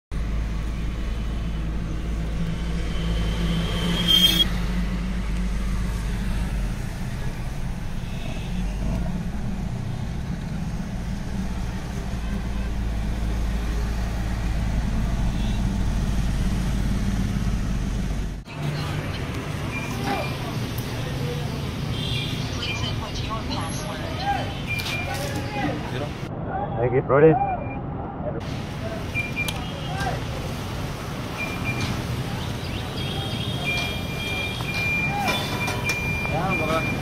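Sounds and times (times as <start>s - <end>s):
diesel engine droning: 0.1s - 26.2s
road noise: 0.1s - 37.0s
high-pitched tone: 2.8s - 4.5s.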